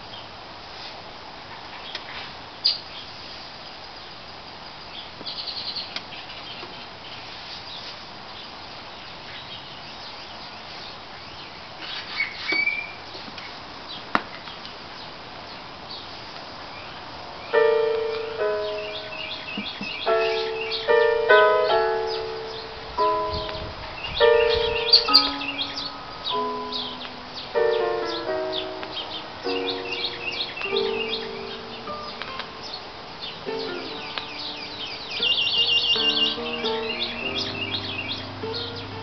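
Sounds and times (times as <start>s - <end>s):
faint hiss: 0.0s - 19.2s
piano music from record: 17.5s - 39.0s.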